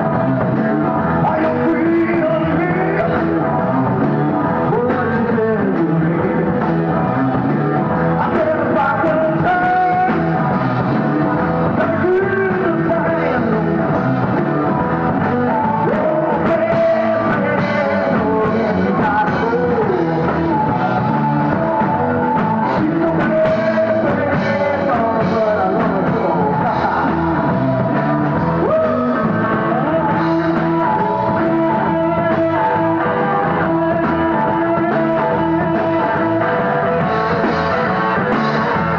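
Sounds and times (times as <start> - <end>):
person singing: 0.0 - 38.9
rock band playing live: 0.0 - 38.9.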